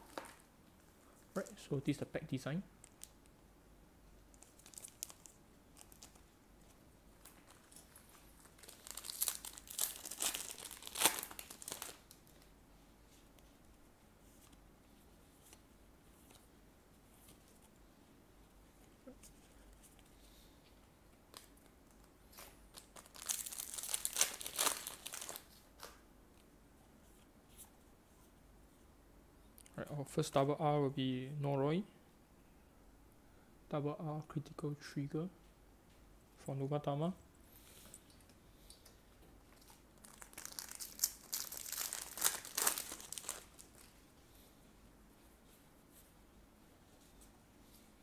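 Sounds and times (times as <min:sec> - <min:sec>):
foil wrapper crinkling and tearing: 0:04.4 - 0:06.2, 0:08.4 - 0:12.3, 0:22.3 - 0:25.5, 0:39.6 - 0:43.9.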